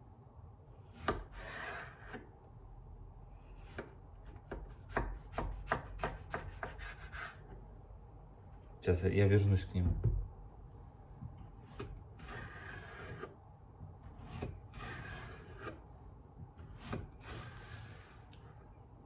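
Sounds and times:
knife slicing zucchini on wooden board: 3.6s - 7.5s, 14.0s - 15.8s, 16.6s - 18.1s.

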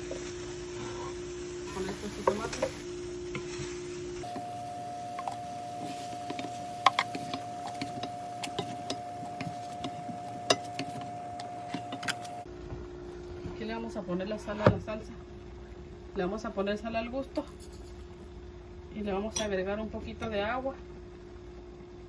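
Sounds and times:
faint steady hum: 0.0s - 22.0s
utensils clicking and tapping: 5.1s - 12.4s.

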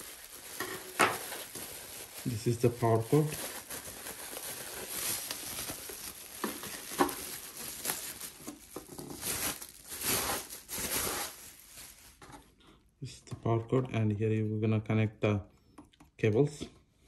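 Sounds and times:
plastic bag crinkling: 0.0s - 12.5s.

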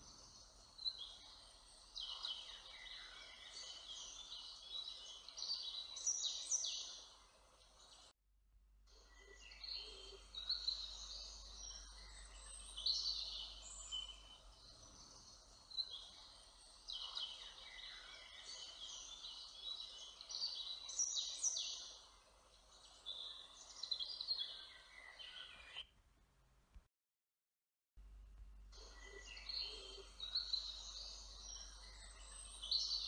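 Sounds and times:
songbirds chirping: 0.0s - 8.1s, 8.9s - 25.9s, 28.3s - 33.0s
soft steady background noise: 28.0s - 33.0s.

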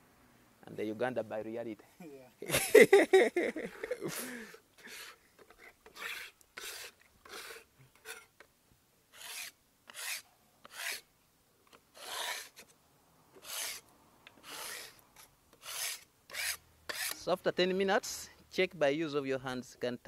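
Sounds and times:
putty knife scraping metal plate: 4.8s - 8.3s, 9.2s - 11.0s, 12.0s - 12.7s, 15.6s - 17.2s.

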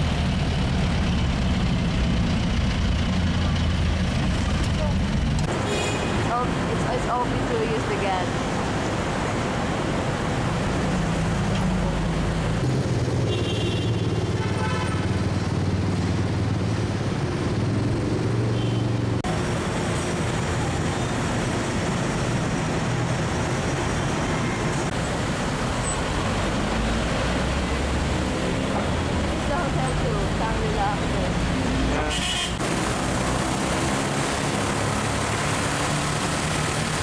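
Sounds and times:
car and bus engines: 0.0s - 37.0s.

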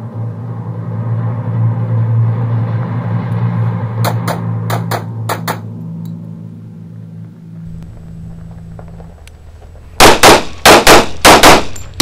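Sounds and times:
steady low hum: 0.0s - 12.0s
pistol shots: 10.0s - 12.0s.

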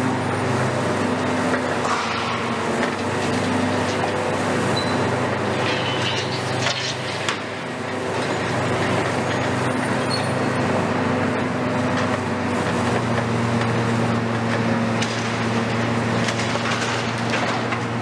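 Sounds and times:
excavator diesel engines running: 0.0s - 18.0s.

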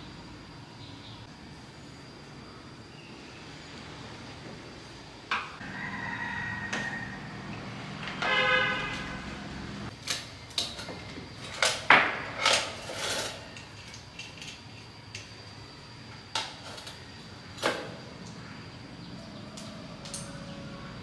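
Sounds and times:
small tools clattering: 10.1s - 15.3s.

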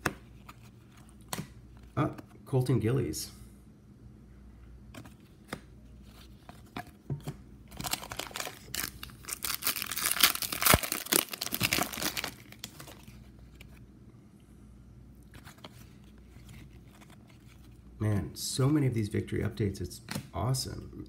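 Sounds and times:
cards tapping: 0.0s - 0.3s
foil wrappers crinkling and tearing: 7.7s - 13.6s.

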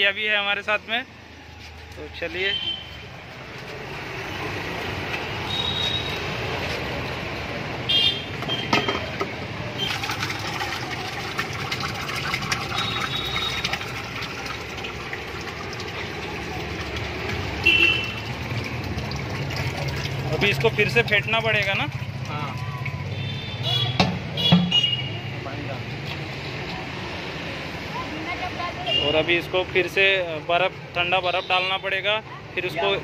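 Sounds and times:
liquid pouring and splashing: 3.0s - 24.7s.

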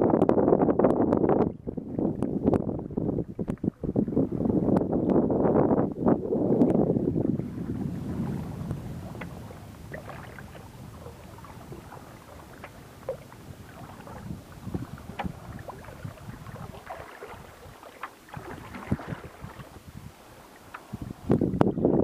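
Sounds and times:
low wind rumble: 0.0s - 22.0s
water lapping against a hull: 0.0s - 22.0s
small splashes and drips: 14.9s - 19.8s.

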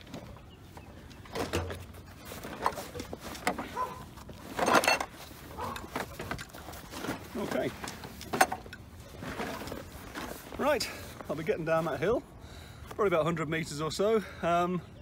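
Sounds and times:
fabric rustling: 1.8s - 11.3s.

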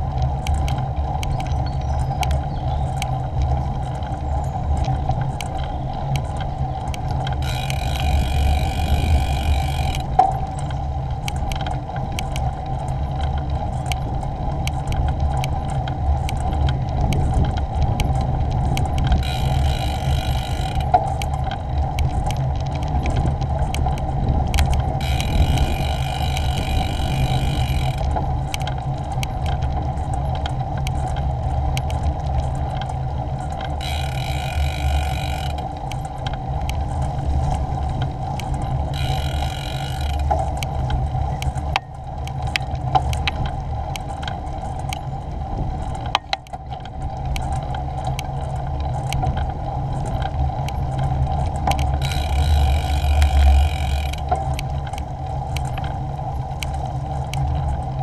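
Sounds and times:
bicycle tyre noise: 0.0s - 58.0s
bike rattling and clicking: 0.0s - 58.0s
wind rumble on microphone: 0.0s - 58.0s
high buzzing: 7.4s - 10.1s, 19.2s - 20.9s, 25.0s - 28.1s, 33.8s - 35.6s, 39.0s - 40.3s, 52.0s - 54.3s.

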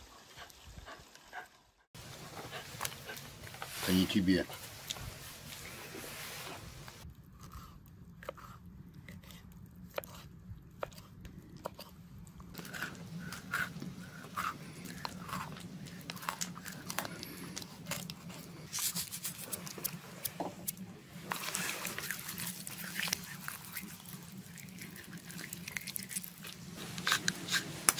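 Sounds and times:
chewing and crunching: 7.0s - 27.9s.

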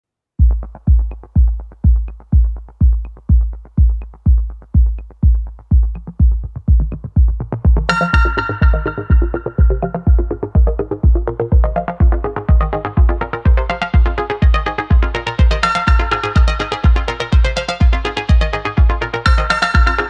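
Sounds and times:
deep kick drum: 0.4s - 20.0s
electronic music: 0.4s - 20.0s
bright synth chord: 7.9s - 10.7s.

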